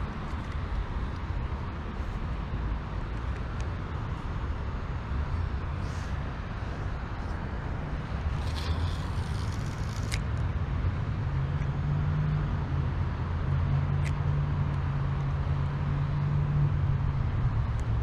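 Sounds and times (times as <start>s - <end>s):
traffic hum: 0.0s - 18.0s
fishing reel clicks: 8.3s - 10.4s.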